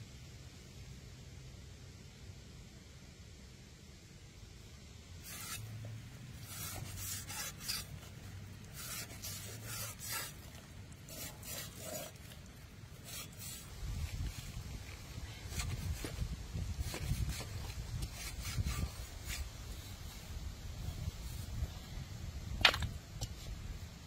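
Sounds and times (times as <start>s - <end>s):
knife scraping pork skin: 5.2s - 5.7s, 6.4s - 13.7s.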